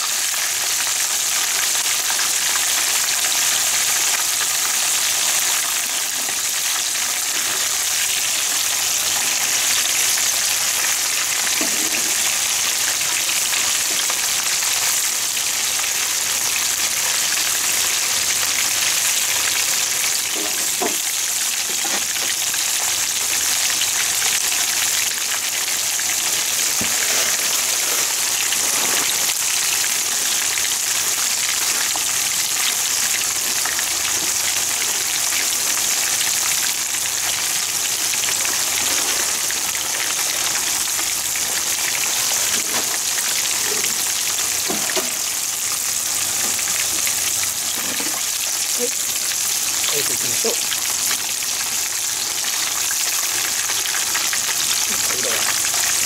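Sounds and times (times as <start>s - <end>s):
food deep-frying in hot oil: 0.0s - 56.0s.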